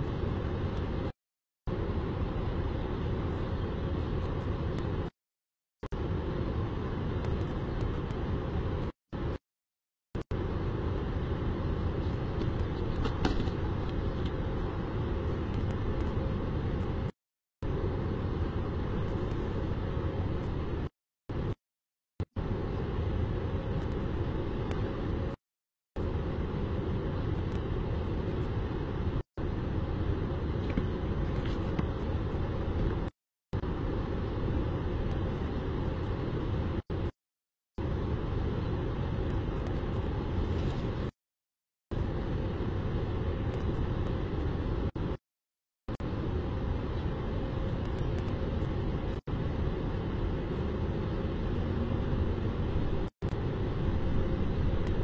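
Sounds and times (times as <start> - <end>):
city traffic rumble: 0.0 - 1.1, 1.7 - 5.1, 5.8 - 9.4, 10.2 - 21.6, 22.2 - 25.4, 26.0 - 37.2, 37.8 - 41.2, 41.9 - 45.2, 45.9 - 55.0.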